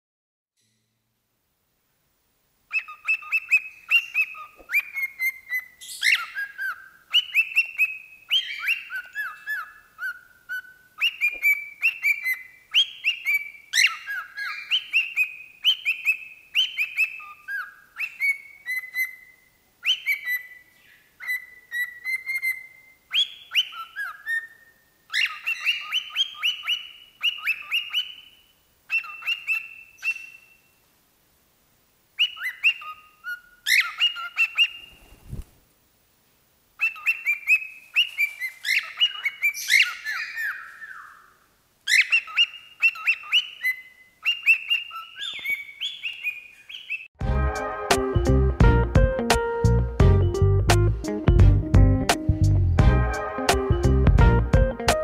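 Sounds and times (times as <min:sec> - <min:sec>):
cockatiel whistling: 0:02.7 - 0:30.6, 0:32.2 - 0:35.1, 0:36.8 - 0:41.3, 0:41.9 - 0:47.1.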